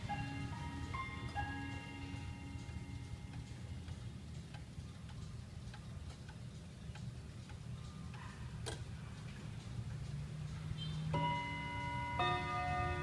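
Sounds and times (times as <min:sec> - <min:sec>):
wall clock ticking and clicking: 0:00.0 - 0:13.0.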